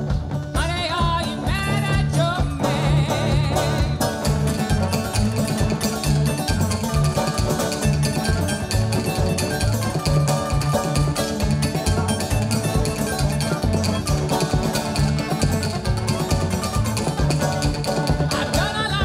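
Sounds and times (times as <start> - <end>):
banjo: 0.0 - 19.0
drum kit beat: 0.0 - 19.0
low bass notes: 0.0 - 19.0.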